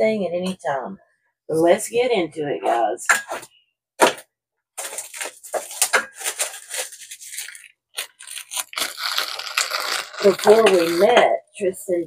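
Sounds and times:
cardboard packaging crinkling: 4.8s - 11.2s.

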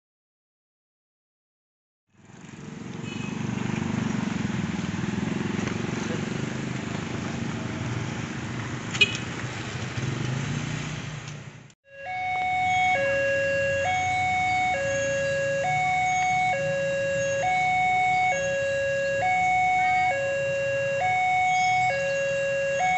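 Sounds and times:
low rumbling street noise: 2.1s - 22.9s
level crossing warning alarm: 11.8s - 22.9s.

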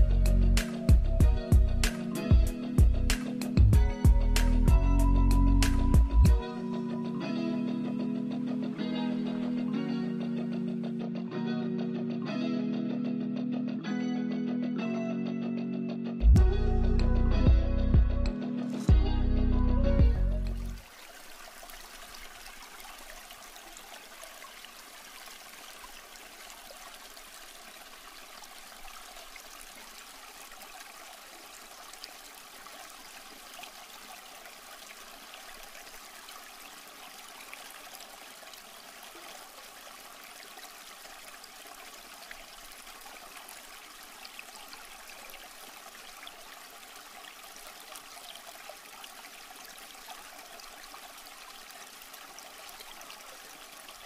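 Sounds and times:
water splashing and trickling: 20.0s - 54.0s
flowing water rushing: 20.6s - 54.0s.

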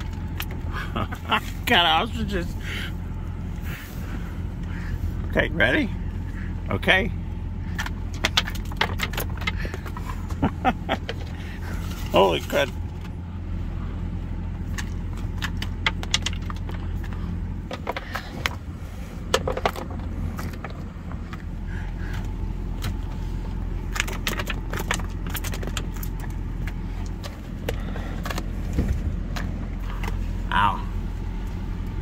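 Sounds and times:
truck engine humming: 0.0s - 32.0s.

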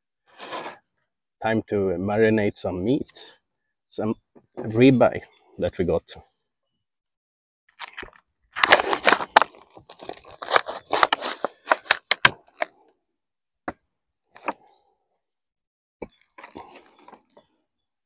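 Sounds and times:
plastic film crinkling: 7.7s - 12.7s.

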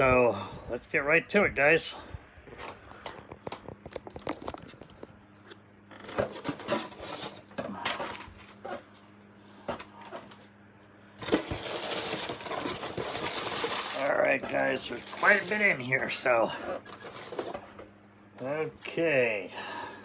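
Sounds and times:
packaging rustling: 11.2s - 15.9s.

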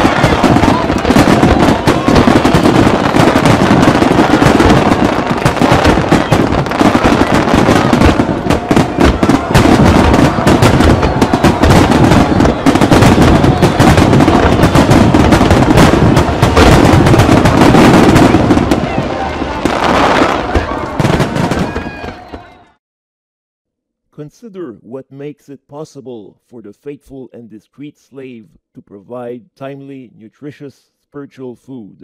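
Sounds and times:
fireworks bangs and crackling: 0.0s - 22.7s.

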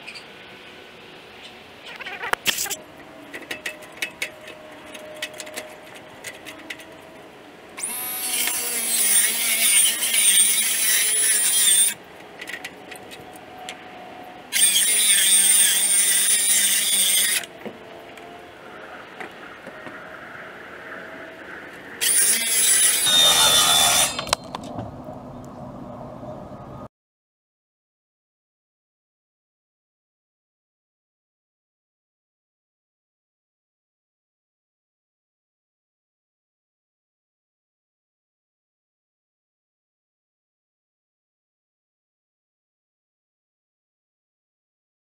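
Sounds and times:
power tool whining: 7.8s - 13.1s, 14.5s - 17.6s, 22.0s - 24.6s.

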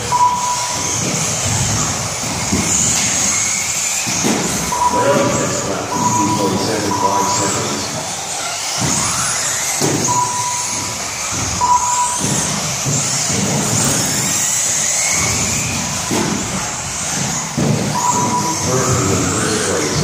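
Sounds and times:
short beeps: 0.0s - 1.2s, 4.7s - 7.8s, 10.0s - 11.0s, 11.6s - 12.6s, 18.0s - 19.2s
electric motors whining: 0.0s - 20.0s
tyre and chassis rumble: 0.0s - 20.0s.

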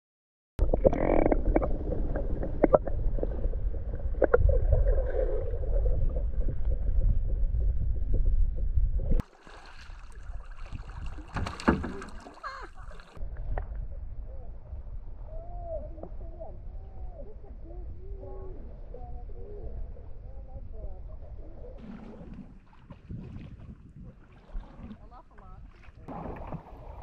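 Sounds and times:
water rushing against camera: 0.7s - 13.8s, 21.8s - 27.0s
water washing along kayak hull: 9.2s - 13.3s, 21.8s - 27.0s.

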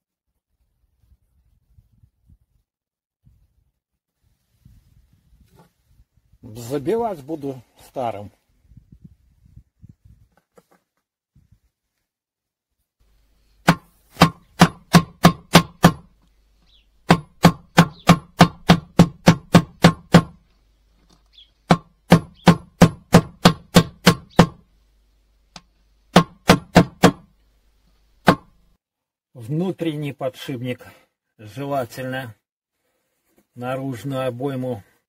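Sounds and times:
hammer blows on metal bearing: 13.6s - 16.1s, 17.0s - 20.4s, 21.7s - 24.6s.

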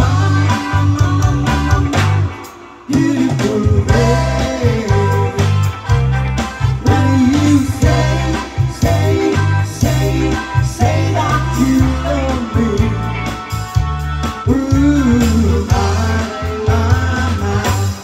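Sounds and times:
bass guitar: 0.0s - 18.0s
drums: 0.0s - 18.0s
electric guitar: 0.0s - 18.0s
keyboard: 0.0s - 18.0s
women singing: 2.9s - 5.4s, 6.8s - 12.4s.

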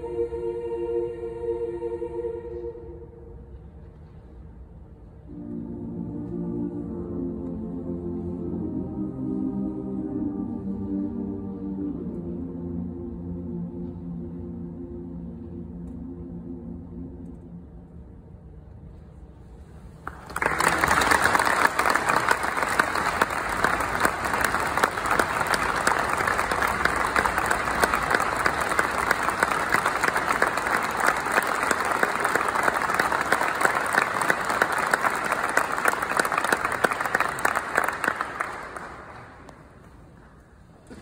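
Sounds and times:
audience applause: 20.0s - 39.5s.

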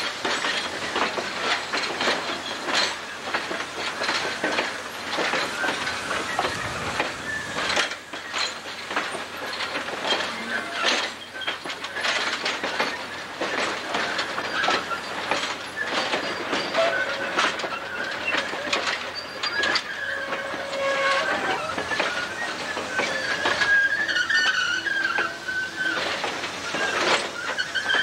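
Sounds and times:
train wheels clicking over rail joints: 0.0s - 28.0s
high wheel squeal: 5.3s - 8.6s, 9.4s - 12.1s, 14.3s - 28.0s.

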